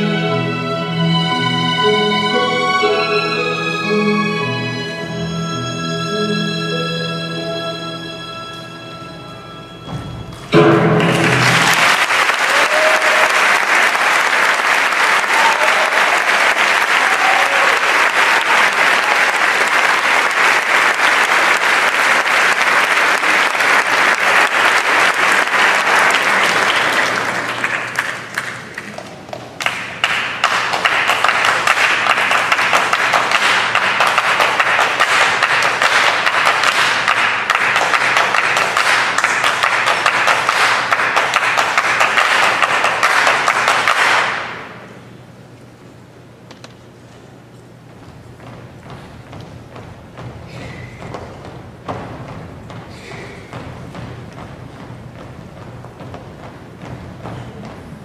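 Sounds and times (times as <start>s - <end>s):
audience applauding: 11.0s - 44.9s.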